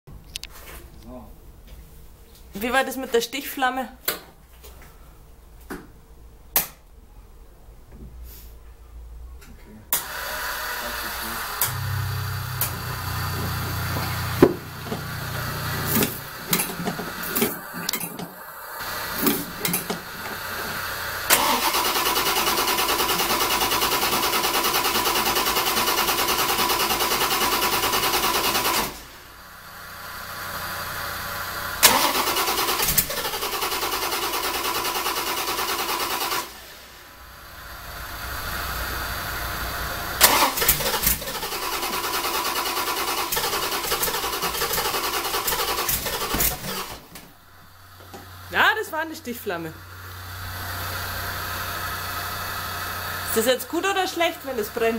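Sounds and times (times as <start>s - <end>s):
engine cranking on starter: 10.0s - 29.2s, 30.0s - 36.8s, 37.5s - 48.5s.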